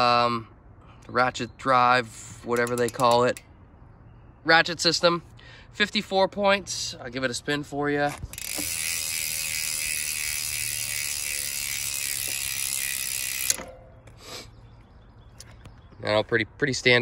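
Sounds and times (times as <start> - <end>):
bicycle freehub buzzing: 2.5 - 3.4, 8.3 - 13.7.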